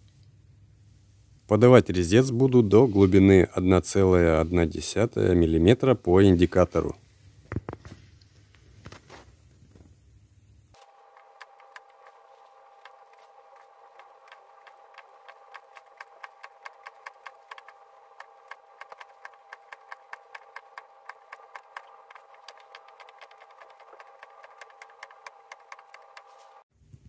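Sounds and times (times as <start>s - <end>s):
lathe cutter clicks: 10.8s - 26.6s
steady hum: 10.8s - 26.6s.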